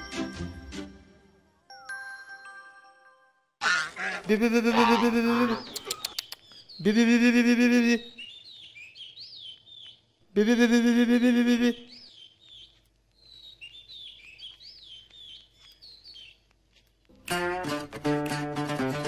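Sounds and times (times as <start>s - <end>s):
small birds chirping: 3.9s - 17.1s.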